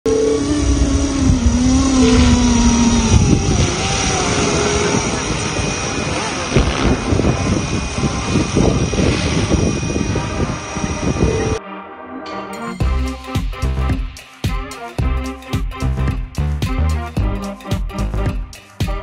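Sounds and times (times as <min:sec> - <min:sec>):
model helicopter motor and rotor: 0:00.4 - 0:11.6.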